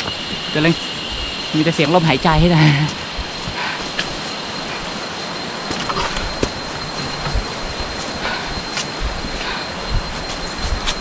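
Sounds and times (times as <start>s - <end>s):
heavy breathing: 2.9s - 5.0s, 8.0s - 10.0s.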